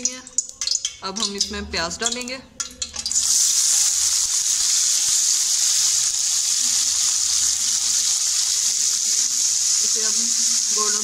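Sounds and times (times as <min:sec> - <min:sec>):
onions sizzling in oil: 0:03.0 - 0:11.0.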